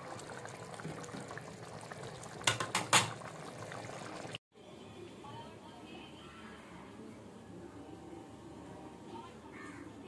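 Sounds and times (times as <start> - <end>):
food bubbling in a pan: 0.0 - 4.4
spatula knocking on pan: 2.4 - 3.2.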